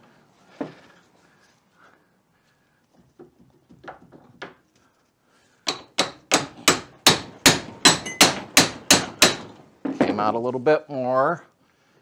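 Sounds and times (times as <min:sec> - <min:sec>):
hammer striking metal: 0:05.7 - 0:09.6.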